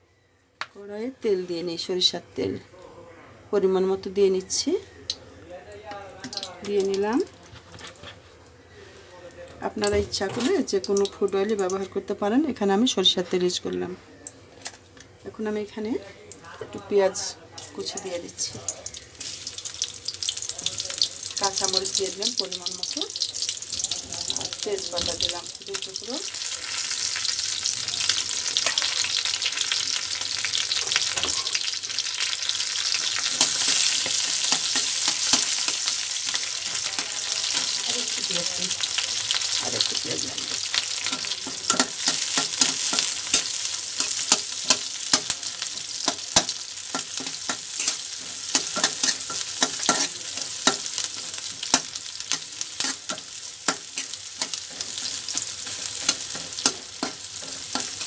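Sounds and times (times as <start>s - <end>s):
vegetables sizzling in hot oil: 5.8s - 8.0s, 9.6s - 13.6s, 14.6s - 58.0s
metal spatula scraping pan: 40.8s - 58.0s.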